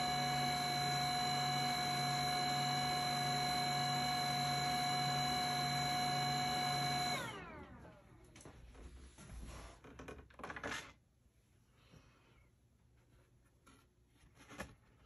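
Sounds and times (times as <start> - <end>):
drying fan whining: 0.0 - 8.6.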